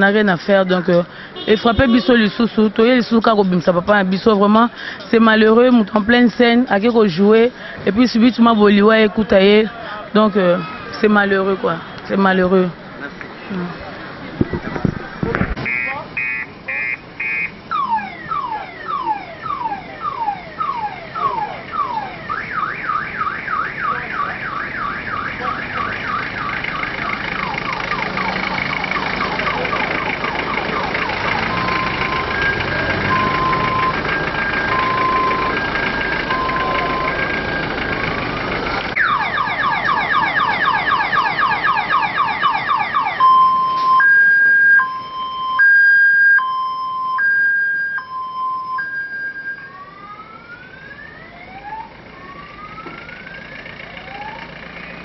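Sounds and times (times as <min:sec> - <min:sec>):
electronic siren cycling tones: 0:15.7 - 0:54.7.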